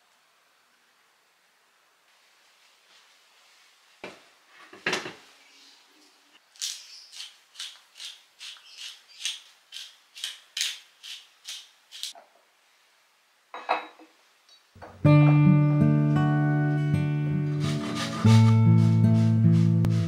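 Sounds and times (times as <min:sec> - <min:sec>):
pepper mill grinding: 0:06.6 - 0:12.1
acoustic guitar music: 0:14.8 - 0:20.0.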